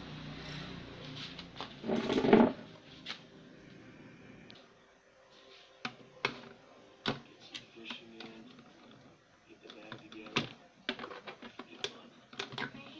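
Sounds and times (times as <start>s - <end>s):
rustling scrape: 0.4s - 3.2s.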